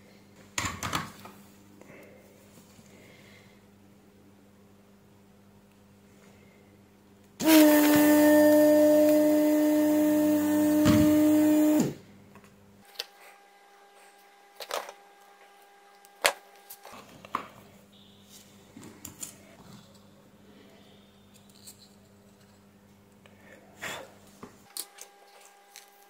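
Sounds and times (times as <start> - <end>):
hot air tool blowing: 7.4 - 12.0.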